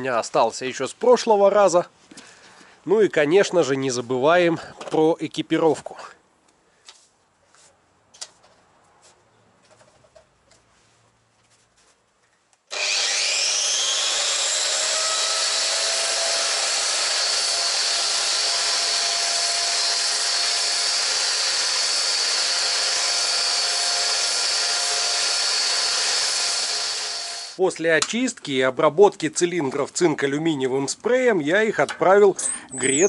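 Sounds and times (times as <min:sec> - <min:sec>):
angle grinder whining: 0:12.7 - 0:27.6
sand blasting into steel barrel: 0:12.7 - 0:27.6.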